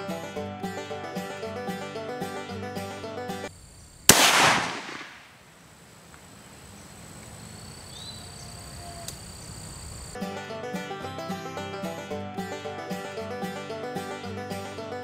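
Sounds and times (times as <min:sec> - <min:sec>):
rifle shot with echo: 0:04.1 - 0:05.4
faint chirp: 0:06.6 - 0:10.2.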